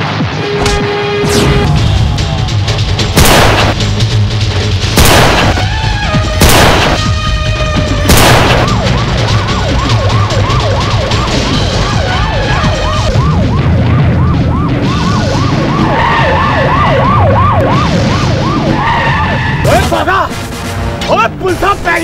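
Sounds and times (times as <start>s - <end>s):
police siren yelping: 5.5s - 19.7s.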